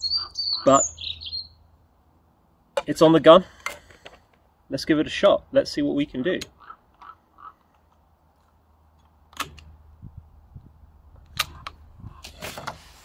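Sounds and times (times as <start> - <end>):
air rifle metallic clicks: 6.4 - 9.8, 11.2 - 11.8.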